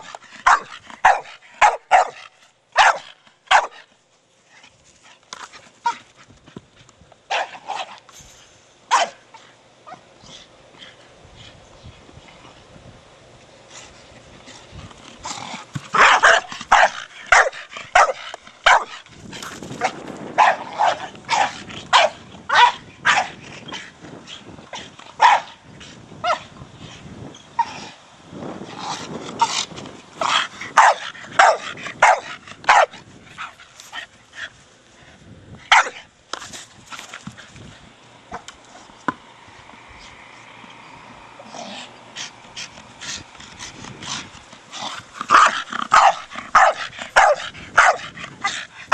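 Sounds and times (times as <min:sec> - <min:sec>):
dog barking sharply: 0:02.8 - 0:03.7, 0:08.9 - 0:09.2.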